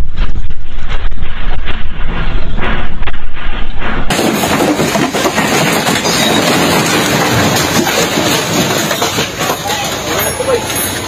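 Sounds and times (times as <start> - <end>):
heavy low rumble: 0.0 - 10.1
shelves and bottles rattling: 4.1 - 11.0.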